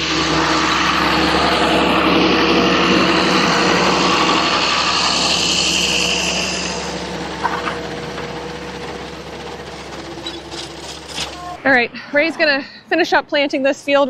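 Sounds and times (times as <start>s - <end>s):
vehicle engine running: 0.0s - 13.2s.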